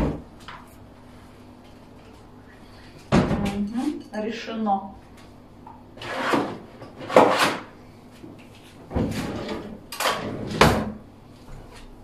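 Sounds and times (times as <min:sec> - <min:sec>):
drawer sliding and knocking: 0:08.9 - 0:11.0.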